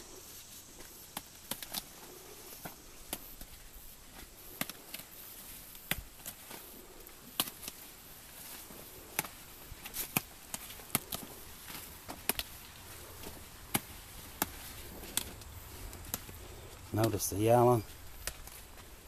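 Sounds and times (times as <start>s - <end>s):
tobacco stalks snapping: 0.8s - 5.1s, 5.7s - 17.5s, 18.1s - 19.0s.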